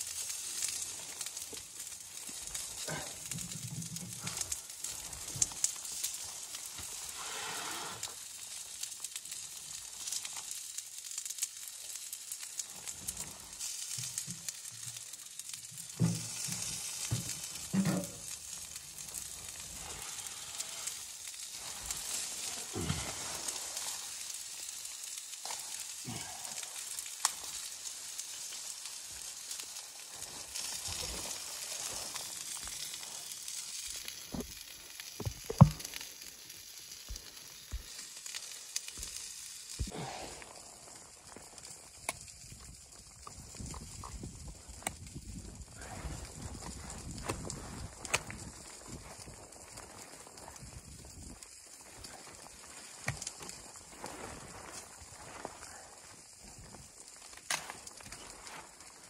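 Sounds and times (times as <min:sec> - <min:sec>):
rain on tent fabric: 0:00.0 - 0:59.0
plastic rustling: 0:11.8 - 0:39.9.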